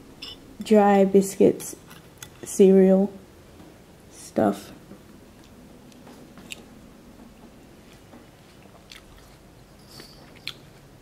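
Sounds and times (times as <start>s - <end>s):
person chewing cereal: 5.3s - 6.7s, 7.7s - 11.0s.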